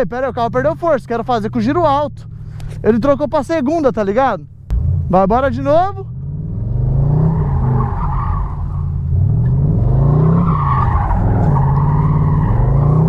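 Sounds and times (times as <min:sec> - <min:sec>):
car engine revving: 0:00.2 - 0:13.0
tyres squealing on asphalt: 0:06.9 - 0:13.0.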